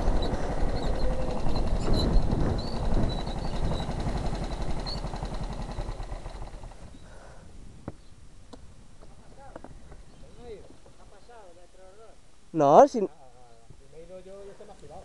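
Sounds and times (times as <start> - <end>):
kart engine chugging: 0.0 - 7.3.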